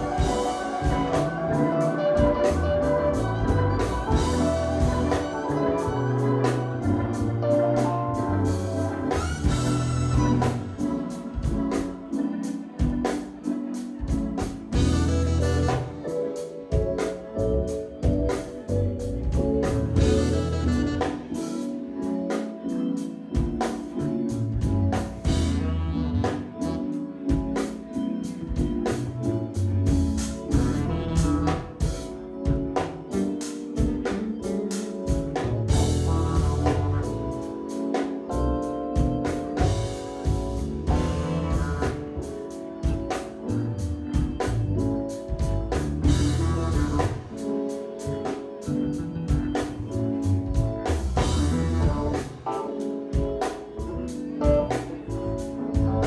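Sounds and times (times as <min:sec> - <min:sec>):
drum kit steady beat: 0:00.0 - 0:56.0
held organ chords: 0:00.0 - 0:56.0
heavy electric bass: 0:02.3 - 0:10.8, 0:24.4 - 0:26.6, 0:29.8 - 0:31.7, 0:35.4 - 0:37.4, 0:39.6 - 0:42.3, 0:43.5 - 0:47.3, 0:49.8 - 0:52.3.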